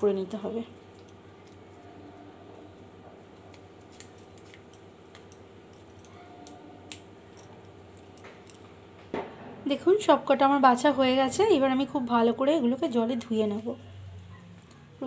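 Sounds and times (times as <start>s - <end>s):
faint steady hum: 0.0s - 15.0s
small clicks and snaps: 3.4s - 8.7s.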